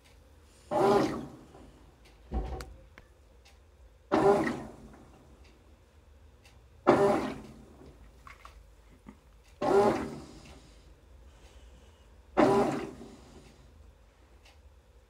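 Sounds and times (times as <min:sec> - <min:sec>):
washing machine water swishing: 0:00.7 - 0:01.8, 0:06.9 - 0:08.8, 0:09.6 - 0:10.8, 0:12.4 - 0:13.5.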